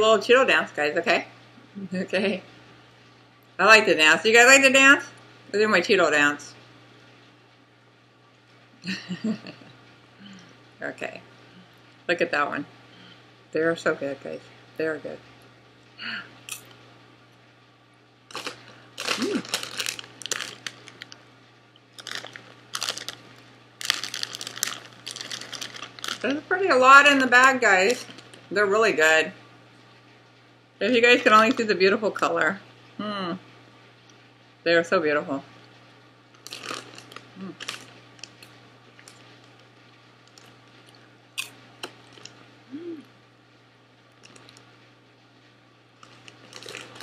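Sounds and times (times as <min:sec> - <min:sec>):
plastic snack bag crinkling: 0:18.3 - 0:21.2, 0:21.9 - 0:28.5, 0:36.4 - 0:42.4, 0:44.2 - 0:44.7, 0:46.0 - 0:47.0
popcorn crunching being chewed: 0:18.3 - 0:21.2, 0:21.9 - 0:26.4, 0:27.8 - 0:28.5, 0:36.4 - 0:42.4, 0:44.1 - 0:44.7, 0:46.0 - 0:47.0
person humming: 0:19.0 - 0:19.6, 0:33.0 - 0:33.4, 0:37.4 - 0:37.7, 0:42.7 - 0:43.1.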